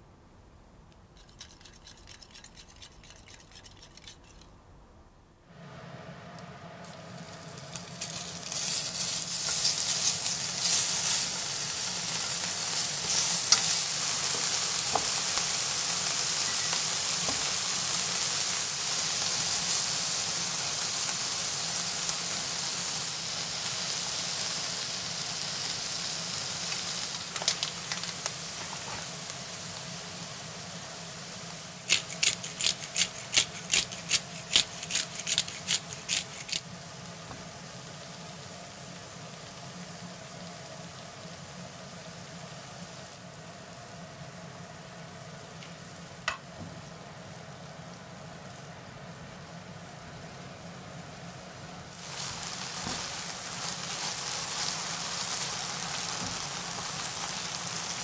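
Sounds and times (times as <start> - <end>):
utensil clicking against pan: 1.2 - 4.5, 31.9 - 36.6
chicken sizzling in a frying pan: 6.8 - 58.0.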